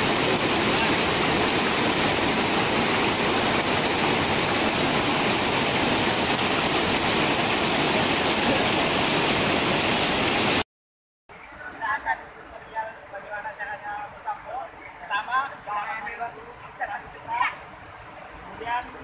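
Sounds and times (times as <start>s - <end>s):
water rushing over rocks: 0.0s - 10.6s.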